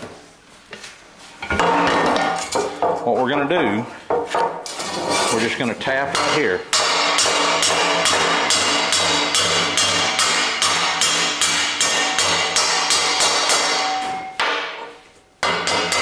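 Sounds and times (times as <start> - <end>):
hammer tapping on metal: 6.1 - 16.0.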